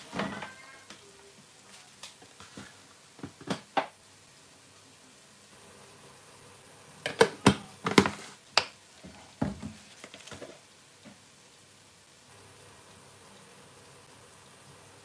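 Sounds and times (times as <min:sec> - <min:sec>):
kitchen knocks and clicks: 0:07.0 - 0:08.7.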